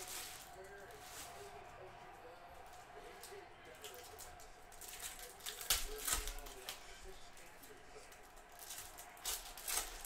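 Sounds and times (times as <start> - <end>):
foil wrapper crinkling and tearing: 0.0 - 1.6, 3.8 - 10.0.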